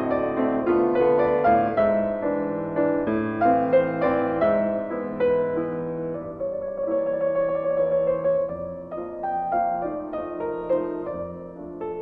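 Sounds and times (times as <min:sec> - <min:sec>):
gentle piano melody: 0:00.0 - 0:12.0.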